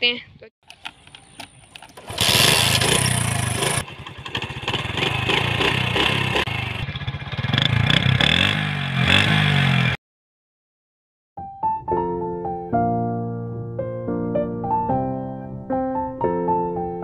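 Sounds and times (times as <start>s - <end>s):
motorcycle kick-start: 0.7s - 8.2s
motorcycle engine revving: 1.9s - 10.0s.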